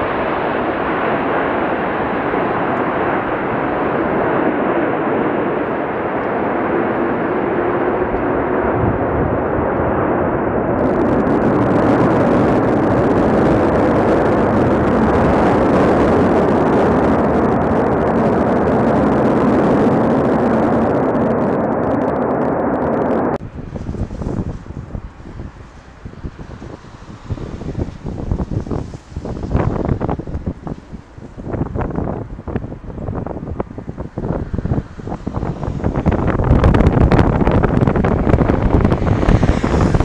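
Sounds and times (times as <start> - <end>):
jet engines roaring: 0.0 - 40.0.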